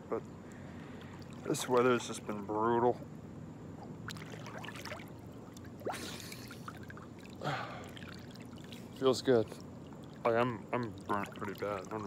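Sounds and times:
pool water lapping: 0.0s - 3.0s, 3.6s - 12.0s
water running off swimmer: 3.8s - 12.0s
short splash: 4.0s - 5.2s, 5.8s - 9.0s.

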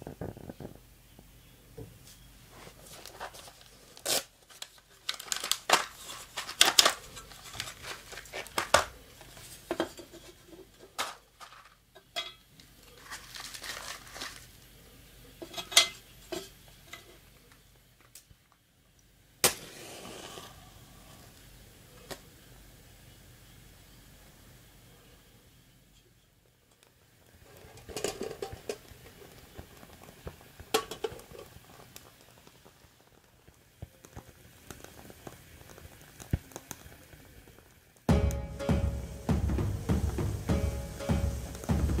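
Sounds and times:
match striking and flaring: 2.8s - 9.7s, 19.4s - 22.2s, 33.9s - 37.2s.

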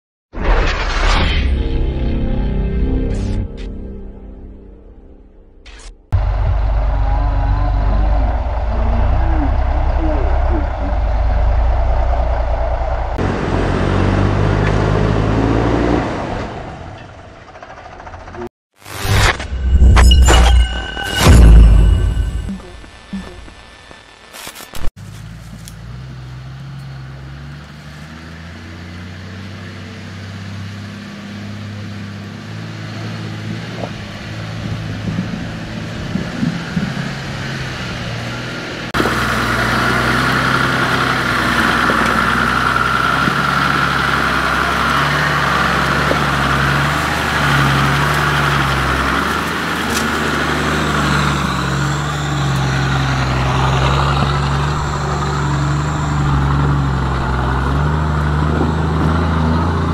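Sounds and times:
diesel engine running: 6.1s - 18.9s, 25.0s - 59.9s.

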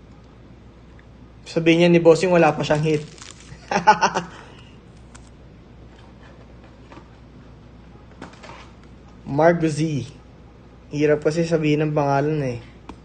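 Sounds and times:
person speaking: 1.4s - 5.1s, 9.1s - 10.3s, 10.9s - 12.9s.

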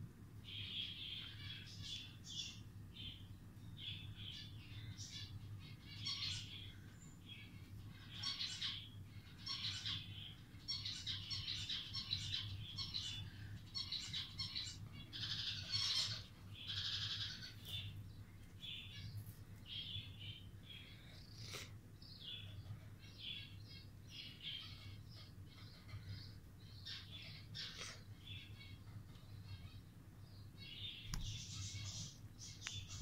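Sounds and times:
budgerigar chirping: 13.8s - 17.9s.

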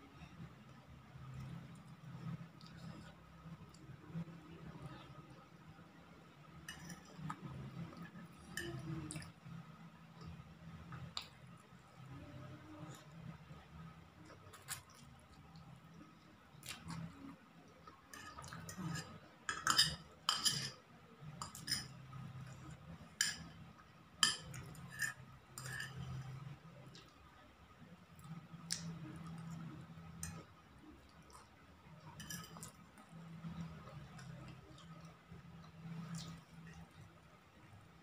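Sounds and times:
metal spoon clinking on plate: 6.7s - 7.2s, 18.1s - 20.8s, 24.2s - 26.2s, 32.2s - 32.8s
eating and slurping: 24.3s - 27.2s.

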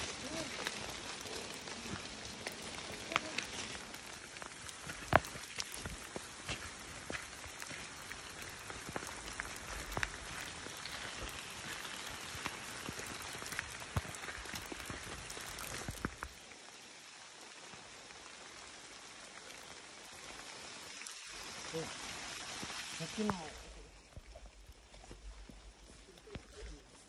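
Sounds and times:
sharp taps of raindrops: 0.0s - 16.6s, 22.5s - 27.0s
steady rain hiss: 0.0s - 27.0s.

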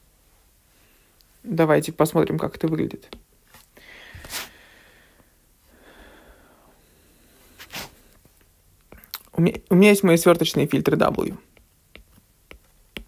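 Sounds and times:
man breathing quietly: 0.6s - 1.3s, 3.7s - 8.4s
sharp intakes of breath: 3.8s - 8.1s.

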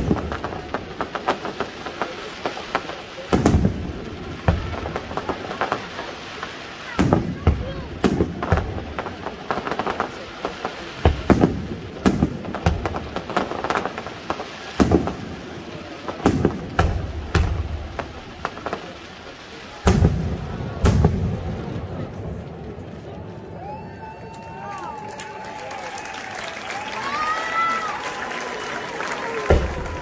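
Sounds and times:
firework crackles: 0.0s - 30.0s
firework shells bursting: 29.2s - 30.0s.

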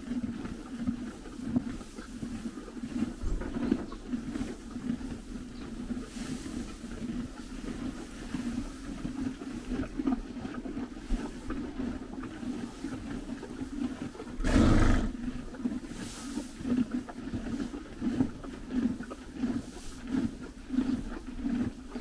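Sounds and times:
horses chewing hay: 0.0s - 22.0s
horse snorting: 1.5s - 22.0s.

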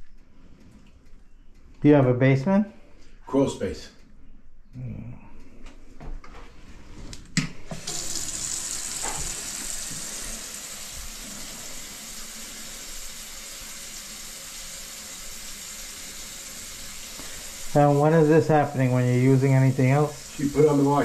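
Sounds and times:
water running in plumbing: 7.6s - 21.0s.

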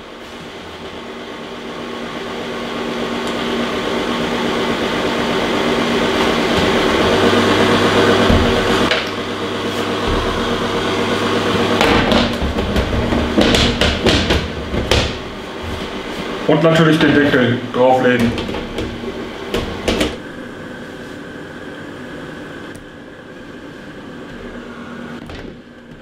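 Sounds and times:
food dehydrator fan humming: 0.0s - 26.0s
plastic trays knocking: 11.8s - 15.2s.

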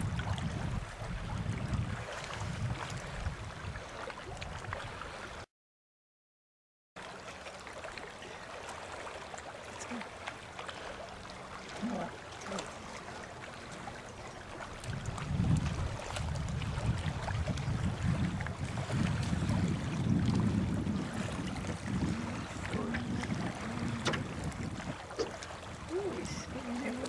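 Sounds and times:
wind rumbling on microphone: 0.0s - 5.4s, 11.8s - 27.0s
river water: 0.0s - 5.5s, 7.0s - 27.0s.

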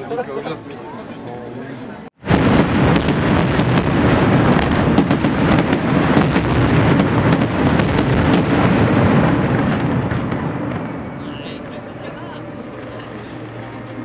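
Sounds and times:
continuous rumble: 0.0s - 14.0s
fireworks bangs and crackles: 2.2s - 13.9s.

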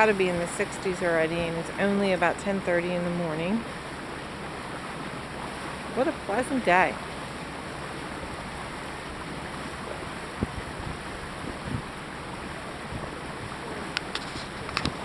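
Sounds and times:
faint low engine hum: 0.0s - 15.0s
water rushing along hull: 0.0s - 15.0s
wind on microphone: 8.1s - 15.0s.

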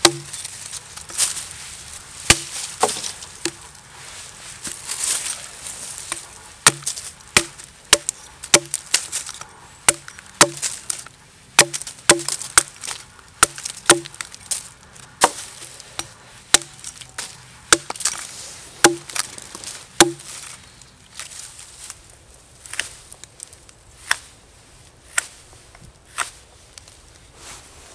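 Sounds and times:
hatchet chopping wood: 0.0s - 0.4s, 2.3s - 3.6s, 6.1s - 9.1s, 9.9s - 10.7s, 11.6s - 14.3s, 15.2s - 16.8s, 17.7s - 18.2s, 18.8s - 19.2s, 20.0s - 20.3s.

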